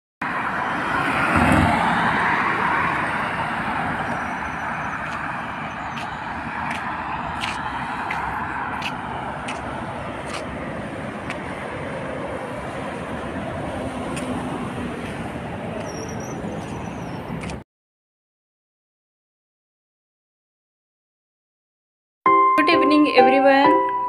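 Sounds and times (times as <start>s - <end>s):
car passing close: 0.2s - 17.6s
road traffic: 0.2s - 17.7s.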